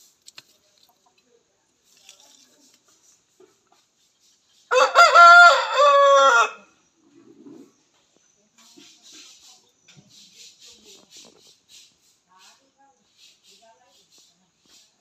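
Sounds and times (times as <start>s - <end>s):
faint rustles and ticks: 0.0s - 4.7s
rooster crowing: 4.7s - 6.7s.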